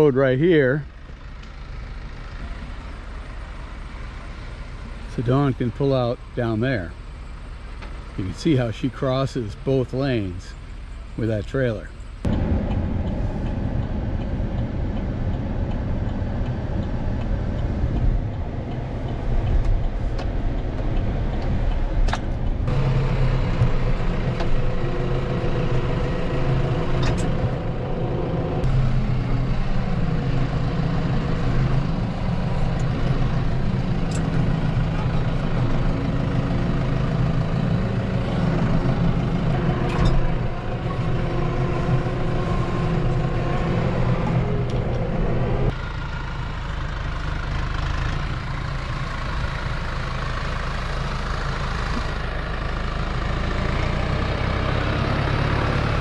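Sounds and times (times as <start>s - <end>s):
tractor diesel engine hum: 0.0s - 56.0s
pickup truck idling: 22.4s - 55.8s.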